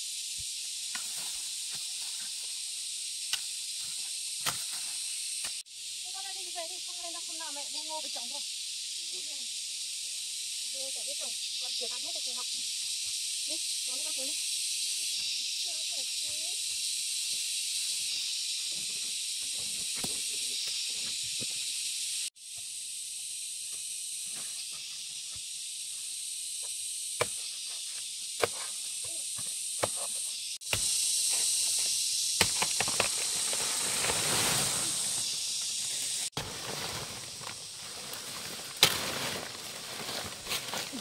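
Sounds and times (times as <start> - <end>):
insect chorus drone: 0.0 - 41.0
footsteps through vegetation: 33.2 - 41.0.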